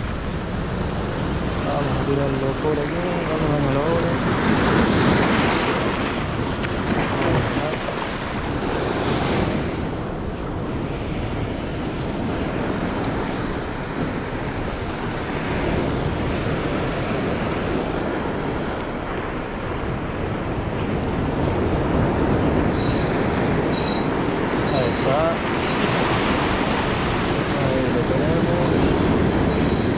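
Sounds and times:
sea surf breaking over boulders: 0.0s - 29.9s
wind buffeting microphone: 0.0s - 29.9s.

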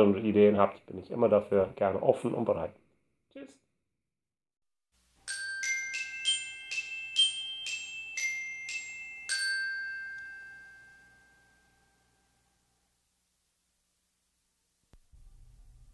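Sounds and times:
bell-like mallet percussion jingle: 5.2s - 12.6s.

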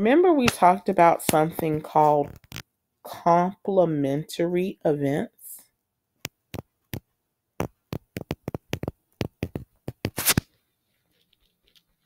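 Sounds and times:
stylus tapping on touchscreen: 6.2s - 10.2s
stylus scrape: 7.9s - 12.0s.

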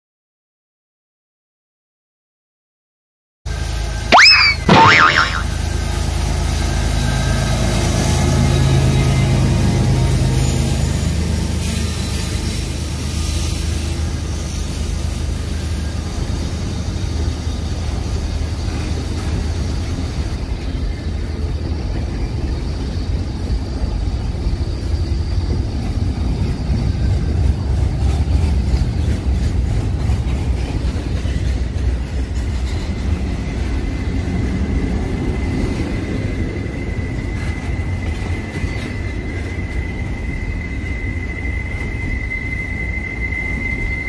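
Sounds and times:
thin high tone: 4.1s - 5.5s
freight train rumbling past: 5.6s - 44.0s.

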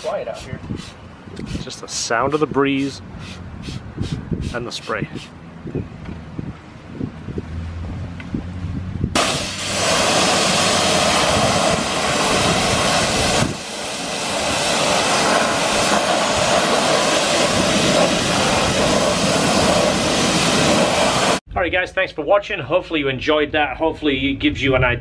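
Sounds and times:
pressure washer spray hissing: 0.0s - 1.7s, 2.3s - 5.3s, 9.2s - 21.4s.

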